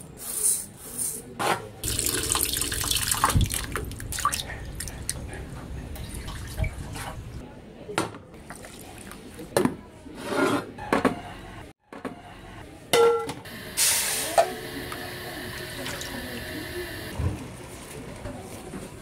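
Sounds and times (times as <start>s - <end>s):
liquid pouring and splashing: 1.8s - 5.0s.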